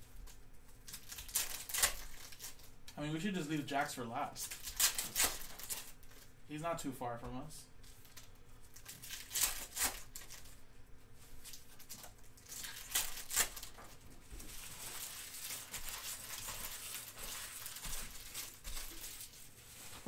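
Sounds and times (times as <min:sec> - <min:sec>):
card pack wrapper tearing and crinkling: 0:00.8 - 0:02.8, 0:04.3 - 0:06.3, 0:08.0 - 0:10.6, 0:11.4 - 0:20.0.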